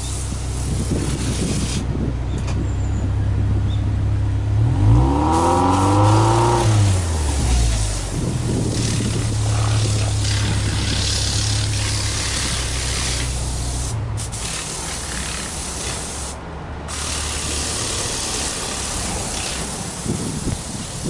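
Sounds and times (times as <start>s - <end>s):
car engine idling hum: 0.0s - 21.0s
constant hiss: 7.2s - 21.0s.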